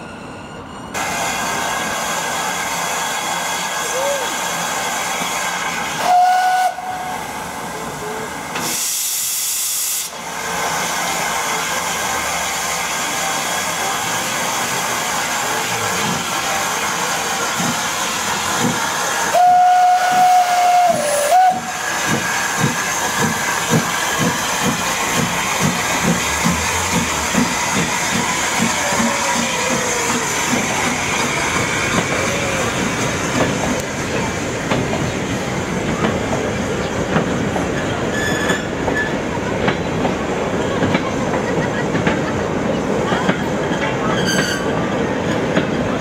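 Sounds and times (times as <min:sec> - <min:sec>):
steam hissing: 0:01.0 - 0:38.0
loud rush of steam: 0:01.0 - 0:40.6
steam locomotive whistle: 0:05.9 - 0:07.3, 0:19.2 - 0:22.6, 0:44.2 - 0:44.8
locomotive exhaust beats: 0:17.5 - 0:37.7.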